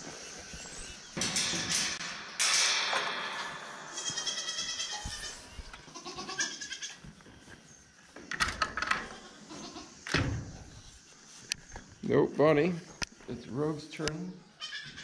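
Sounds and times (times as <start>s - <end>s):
wooden gate and latch knocking: 1.2s - 4.9s
goats bleating: 4.0s - 7.0s.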